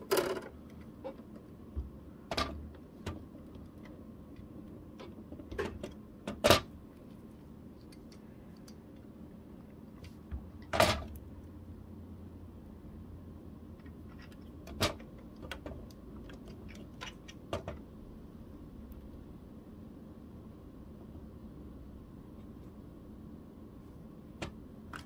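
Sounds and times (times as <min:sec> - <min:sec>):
plastic parts clicking and knocking: 0:00.0 - 0:06.7, 0:13.8 - 0:17.9.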